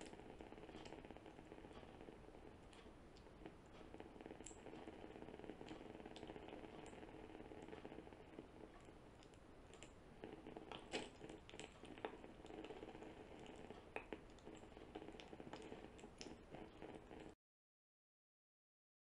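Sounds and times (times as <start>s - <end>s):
light clicks and taps: 8.7s - 17.4s.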